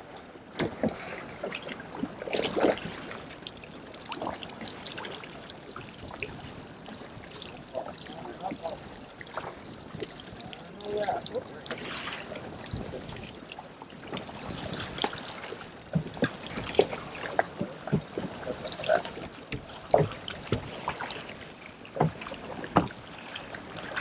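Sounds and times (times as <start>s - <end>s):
knocks and splashes: 0.0s - 3.4s, 6.0s - 24.0s
water lapping against boat hull: 0.0s - 24.0s.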